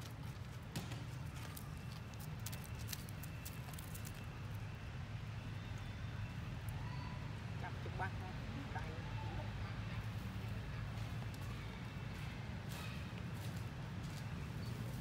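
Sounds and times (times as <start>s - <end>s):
dry leaves crackling: 0.0s - 4.6s.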